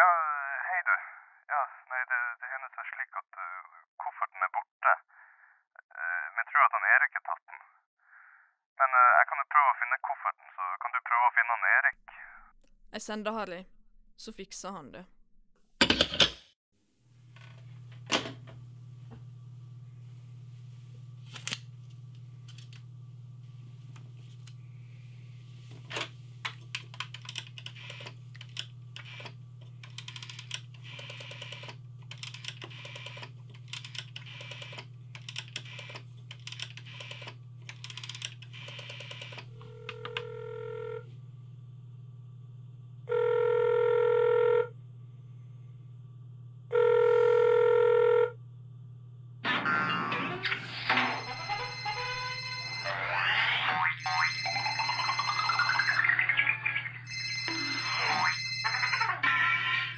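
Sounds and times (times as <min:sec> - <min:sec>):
steady low hum: 0:16.9 - 0:53.0
rotary dial clicking: 0:26.8 - 0:39.5
telephone ringback tone: 0:38.9 - 0:41.1, 0:43.1 - 0:44.7, 0:46.7 - 0:48.4, 0:50.8 - 0:59.9.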